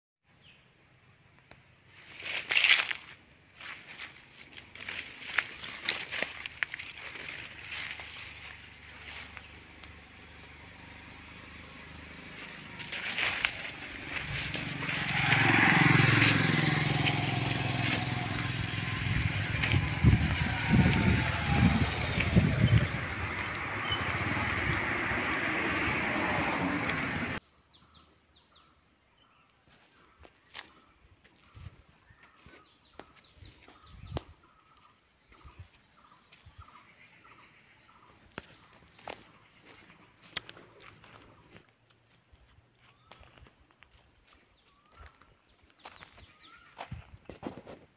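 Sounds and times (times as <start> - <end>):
birds chirping: 0.2 - 47.9
vehicle passing: 3.6 - 27.4.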